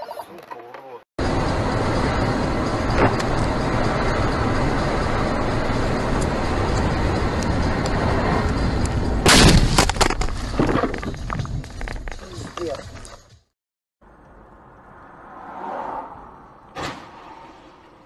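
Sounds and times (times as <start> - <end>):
car road and wind noise: 1.2 - 13.1, 14.0 - 18.0
car crash bangs and rattles: 9.2 - 11.0.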